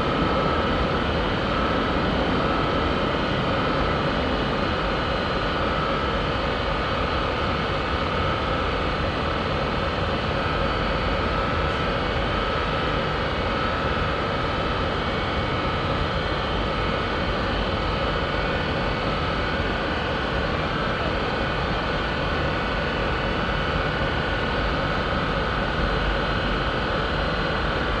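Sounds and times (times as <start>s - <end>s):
steady mechanical drone: 0.0s - 28.0s.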